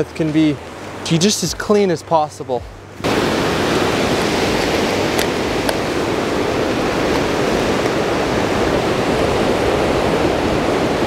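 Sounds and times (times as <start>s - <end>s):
ocean surf washing onto rocks: 3.0s - 11.0s.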